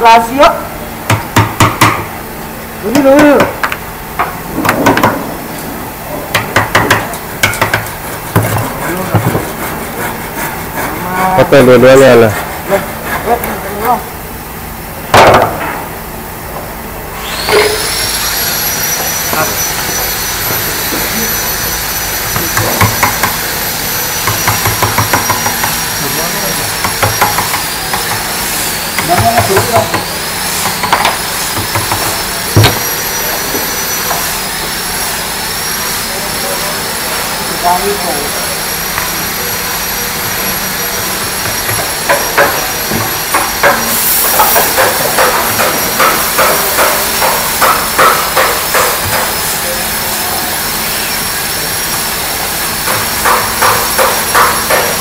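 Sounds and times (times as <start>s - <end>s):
workshop machinery running: 0.0s - 55.0s
hand tool tapping wood: 2.9s - 5.2s, 6.3s - 10.9s, 22.3s - 23.4s, 24.2s - 25.8s, 26.8s - 32.8s, 41.4s - 49.4s, 52.8s - 55.0s
chisel scraping wood: 8.0s - 13.5s.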